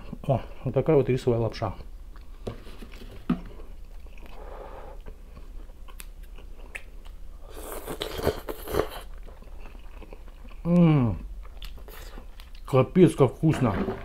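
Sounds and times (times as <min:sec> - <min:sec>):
chewing sounds: 0:03.8 - 0:12.8.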